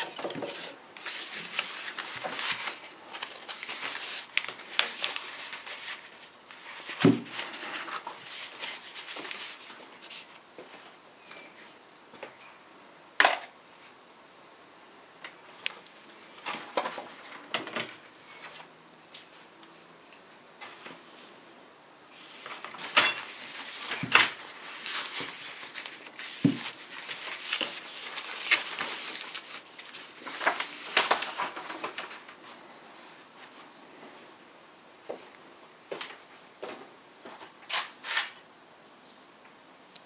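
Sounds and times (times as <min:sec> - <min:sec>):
tissue paper rustling: 0:00.0 - 0:10.4, 0:22.1 - 0:33.6.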